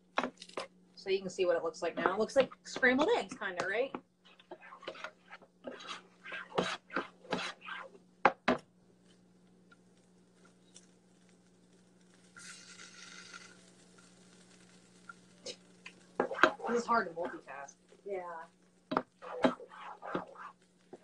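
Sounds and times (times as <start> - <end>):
low steady hum: 0.0 - 21.0
spatula scraping skillet: 1.8 - 8.5, 12.2 - 18.0, 18.8 - 21.0.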